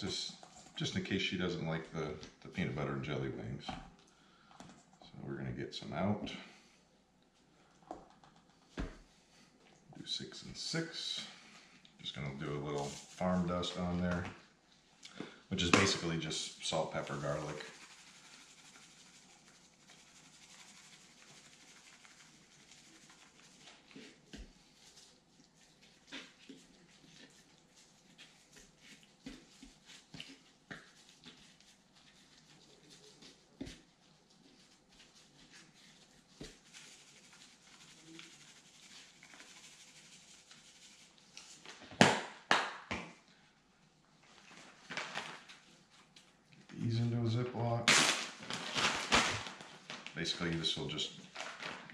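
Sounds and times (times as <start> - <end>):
sharp spice shaker shakes: 15.6 - 23.6, 36.4 - 42.1
seasoning shaker patter: 15.6 - 41.6
plastic bag rustling: 44.4 - 45.9, 47.8 - 51.9.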